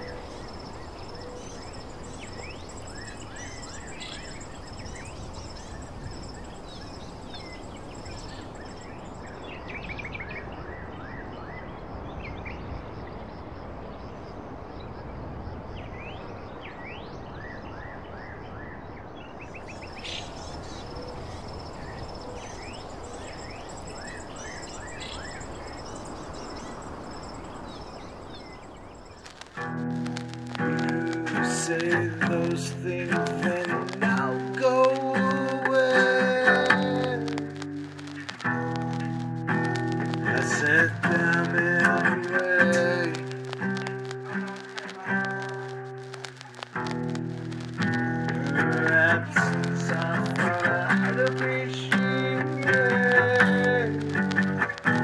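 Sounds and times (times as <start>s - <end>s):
high insect trill: 0.0s - 9.8s, 19.6s - 55.0s
small birds chirping: 0.0s - 13.4s, 19.2s - 55.0s
background hush: 19.7s - 55.0s.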